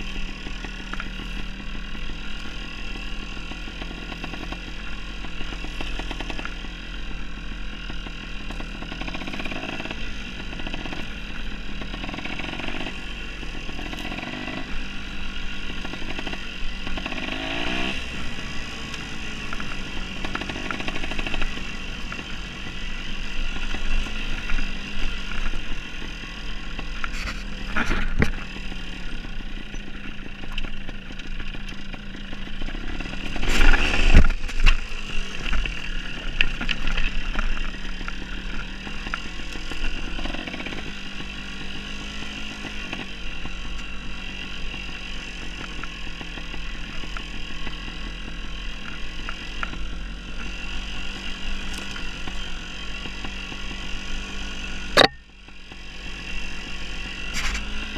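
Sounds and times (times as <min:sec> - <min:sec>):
dirt bike engine revving: 0:00.0 - 0:57.9
loud clatter: 0:30.3 - 0:37.8.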